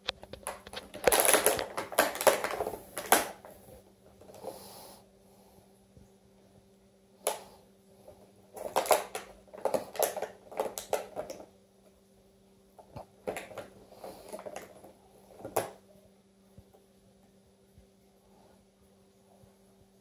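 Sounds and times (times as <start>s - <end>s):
cat biting plastic container: 0.1s - 3.6s, 8.5s - 11.5s, 13.0s - 15.8s.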